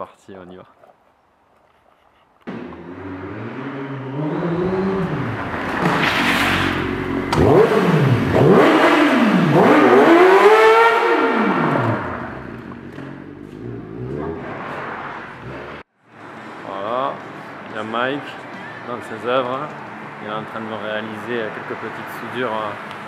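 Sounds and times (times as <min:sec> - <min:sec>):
motorcycle engine revving: 0:02.5 - 0:15.8.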